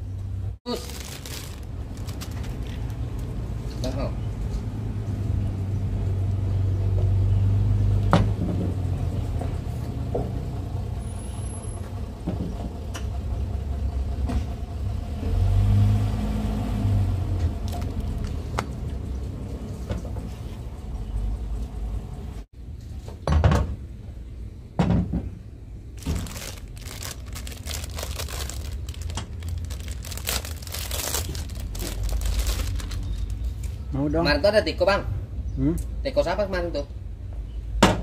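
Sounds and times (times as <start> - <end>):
vehicle engine rumbling: 0.0 - 22.5, 25.4 - 34.0
plastic packet crinkling: 0.7 - 3.3, 17.6 - 18.6, 26.0 - 33.7.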